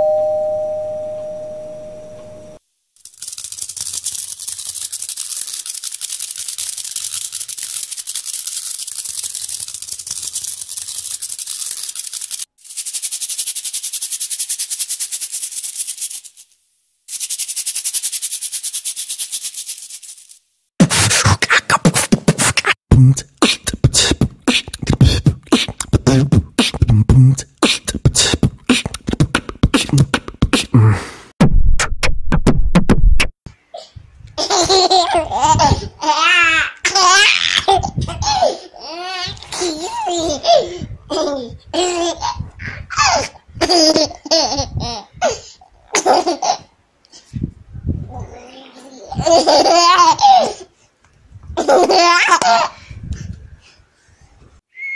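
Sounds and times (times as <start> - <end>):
shaker rattling: 3.0 - 20.5, 22.6 - 30.7, 49.2 - 50.2
beatbox-like clicks and thumps: 20.8 - 33.4
baby laughing: 33.8 - 46.7, 48.2 - 50.7, 51.6 - 52.8.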